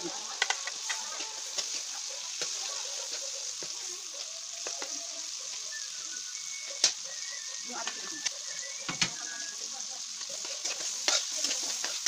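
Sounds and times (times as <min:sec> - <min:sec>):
oil sizzling in a wok: 0:00.0 - 0:12.0
metal spatula scraping a pan: 0:00.4 - 0:03.9, 0:10.2 - 0:12.0.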